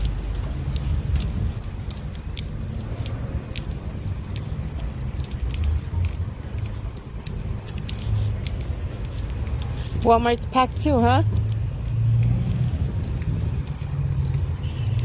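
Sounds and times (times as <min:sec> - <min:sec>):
car road rumble: 0:00.0 - 0:15.0
light clicks and rattles: 0:00.0 - 0:15.0.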